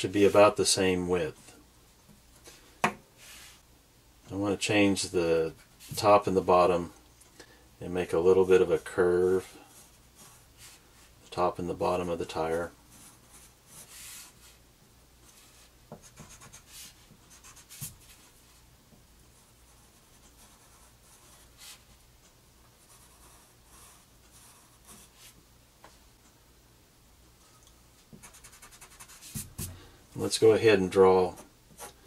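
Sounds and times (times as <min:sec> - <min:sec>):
pencil scratching on paper: 0:09.7 - 0:10.8, 0:12.9 - 0:14.6, 0:15.3 - 0:18.3, 0:22.8 - 0:25.4, 0:28.2 - 0:29.8.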